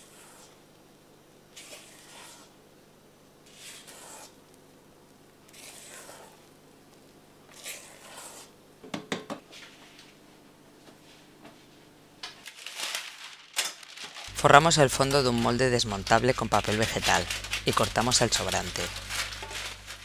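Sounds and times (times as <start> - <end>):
wet swishes of batter folding: 1.5 - 2.6, 3.5 - 4.4, 5.5 - 6.6, 7.5 - 8.5.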